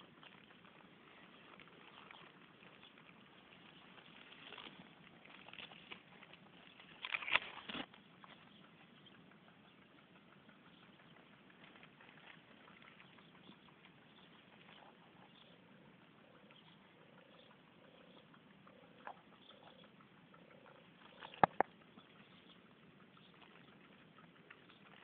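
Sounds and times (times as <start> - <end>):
rustle of foliage: 0.0 - 8.5
sharp clicks: 17.3 - 22.3.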